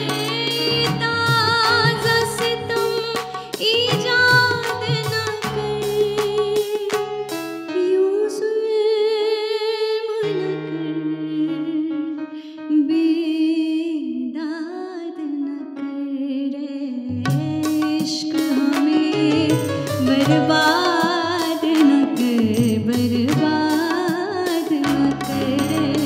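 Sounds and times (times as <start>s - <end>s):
percussion strokes: 0.0s - 7.7s, 17.3s - 26.0s
sustained musical accompaniment: 0.0s - 8.5s, 15.6s - 26.0s
woman singing wordless notes: 7.7s - 26.0s.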